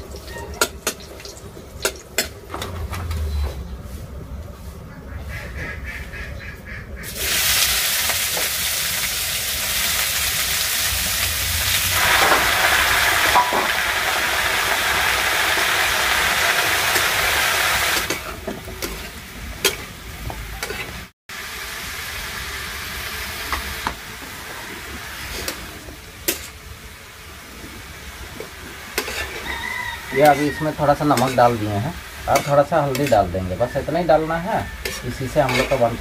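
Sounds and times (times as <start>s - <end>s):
vegetables sizzling in hot oil: 7.1s - 36.0s.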